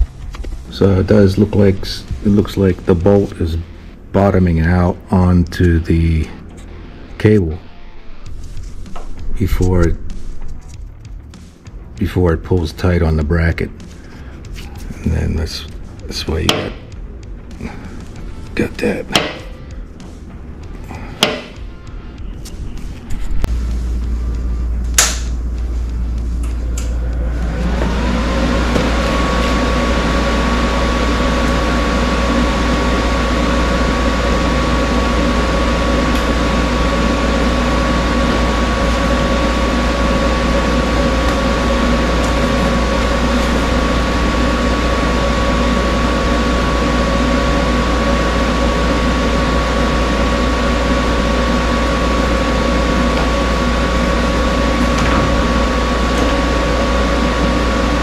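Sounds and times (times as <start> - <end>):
machine motor hum with whine: 0.0 - 58.0.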